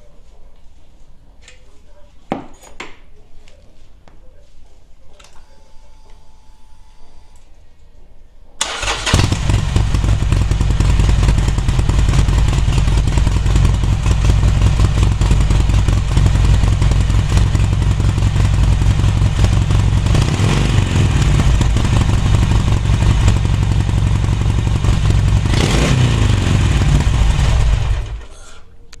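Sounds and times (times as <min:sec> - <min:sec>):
motorcycle engine exhaust rumble: 0:09.0 - 0:28.3.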